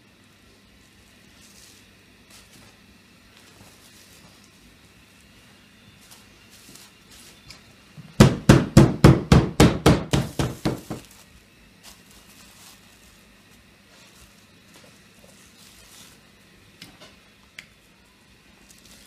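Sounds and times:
meat mallet pounding: 0:08.2 - 0:11.1.

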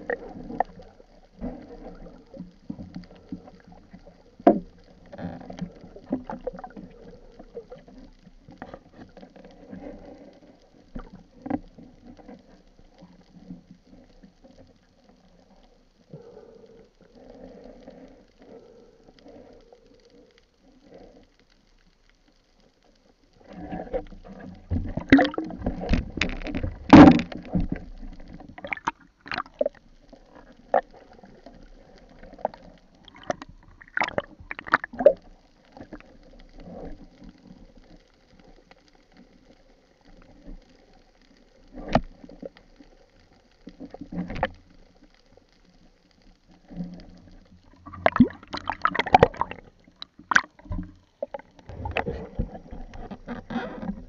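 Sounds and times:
gear clicks and knocks underwater: 0:00.0 - 0:54.0
water rushing and gurgling: 0:23.4 - 0:35.9, 0:47.7 - 0:53.9.

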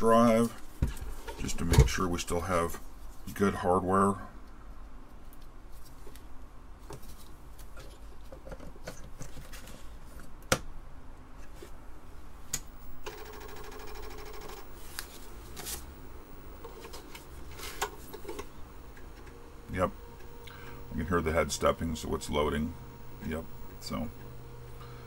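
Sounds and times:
buzzing rattle: 0:12.7 - 0:25.0
hands handling computer parts: 0:16.6 - 0:19.4.

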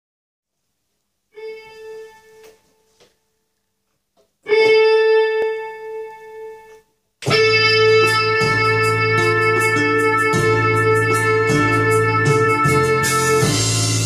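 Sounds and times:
keyboard held note: 0:01.4 - 0:03.0
keyboard accompaniment with bass: 0:04.4 - 0:14.0.

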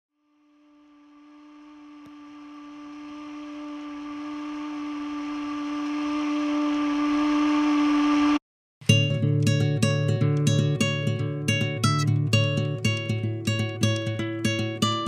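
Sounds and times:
single-pitch drone: 0:00.1 - 0:08.4
hissy wash: 0:01.3 - 0:08.4.

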